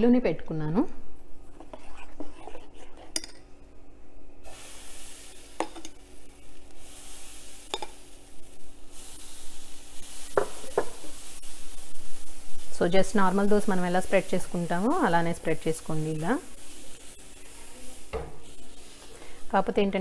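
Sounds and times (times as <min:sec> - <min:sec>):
batter sizzling on hot pan: 0:04.4 - 0:20.0.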